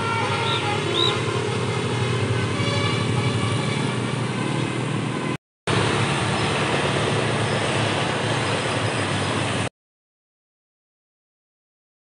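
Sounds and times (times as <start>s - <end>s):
vehicle engine running: 0.2s - 9.7s.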